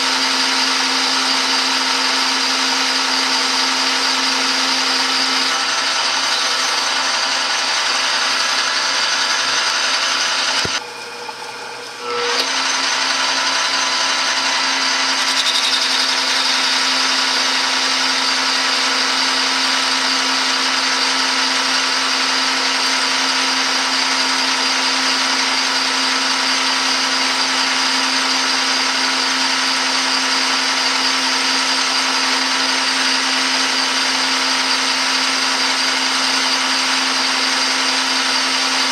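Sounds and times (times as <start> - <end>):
metal lathe cutting: 0.0 - 38.9.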